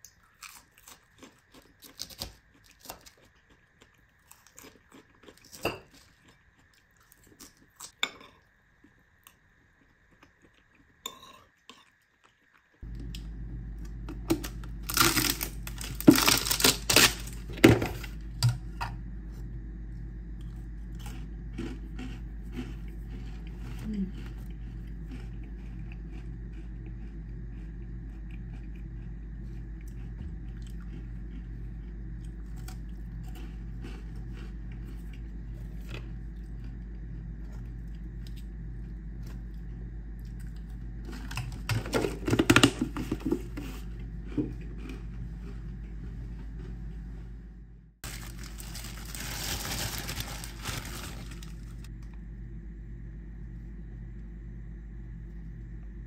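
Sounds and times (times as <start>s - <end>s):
cookies crunching breaking apart: 13.9s - 17.5s, 48.0s - 51.9s
plastic bag rustling: 14.9s - 18.1s, 48.0s - 51.9s.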